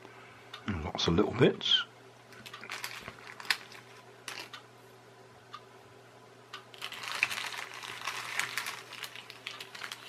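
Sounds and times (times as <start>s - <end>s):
plastic bag crinkling: 2.3s - 4.6s, 6.7s - 10.0s
plastic parts clicking: 2.3s - 4.6s, 6.8s - 10.0s.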